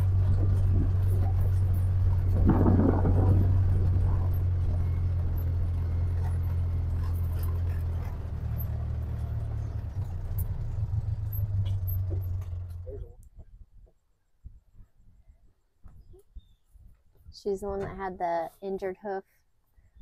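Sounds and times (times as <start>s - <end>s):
loud rattling: 0.0s - 12.8s
utility vehicle engine droning: 0.0s - 13.5s.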